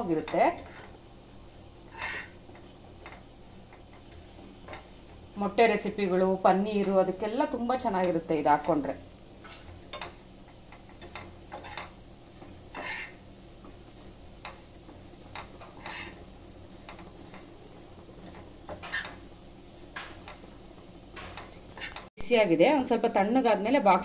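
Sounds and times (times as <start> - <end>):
metal spoon scraping a pan: 1.9 - 2.4, 10.8 - 13.2, 15.3 - 17.5, 18.7 - 19.2, 21.2 - 22.1.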